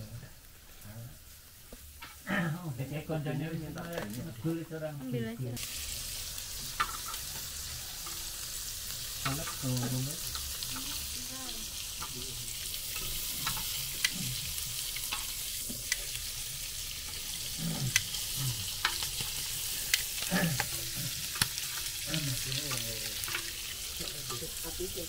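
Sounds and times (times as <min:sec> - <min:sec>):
sausages sizzling on a grill pan: 0:00.0 - 0:25.0
metal tongs clicking against pan: 0:06.7 - 0:12.2, 0:12.9 - 0:16.5, 0:17.1 - 0:24.9.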